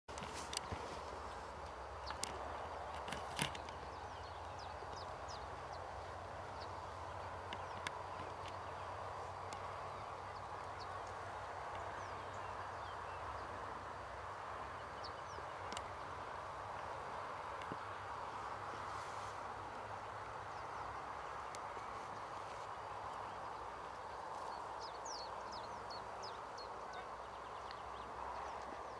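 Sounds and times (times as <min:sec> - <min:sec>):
distant small birds chirping: 0:00.1 - 0:28.9
outdoor background hiss: 0:00.1 - 0:28.9.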